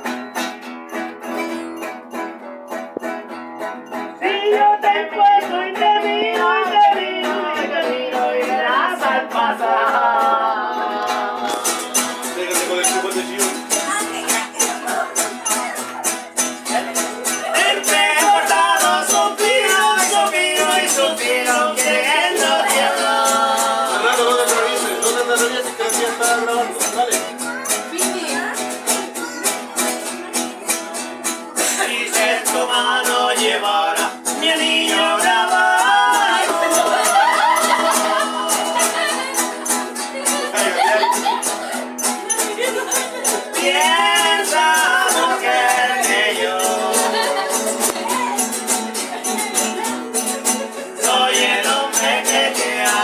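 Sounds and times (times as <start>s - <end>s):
acoustic guitars strummed: 0.0s - 53.0s
crisp steady beat: 0.1s - 5.0s, 11.0s - 29.1s, 30.8s - 53.0s
men singing together: 4.2s - 14.0s, 17.2s - 27.2s, 31.6s - 41.7s, 42.3s - 48.0s, 50.7s - 53.0s.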